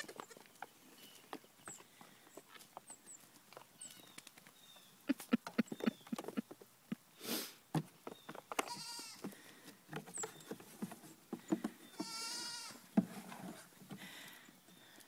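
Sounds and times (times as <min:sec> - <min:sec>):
small hooves tapping: 0:00.0 - 0:07.1, 0:07.7 - 0:15.0
goat kids bleating: 0:08.6 - 0:09.4, 0:11.9 - 0:12.9.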